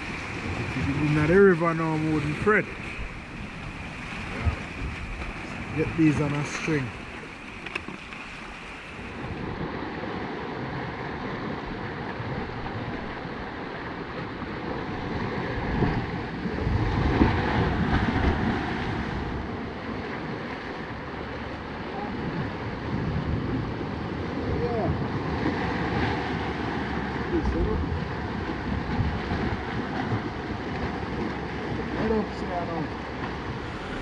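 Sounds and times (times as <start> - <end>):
waves breaking: 0.0 - 34.0
wind buffeting microphone: 0.0 - 34.0.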